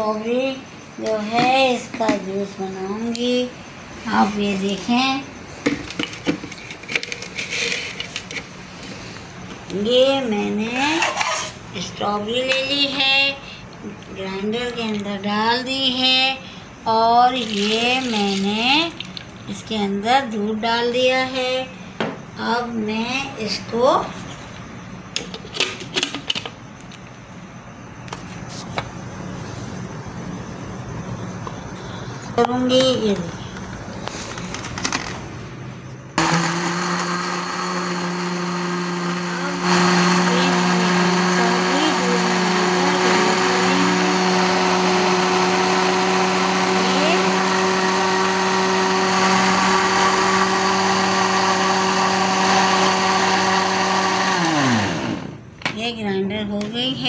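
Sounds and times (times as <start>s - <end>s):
blender motor humming: 36.2s - 55.4s.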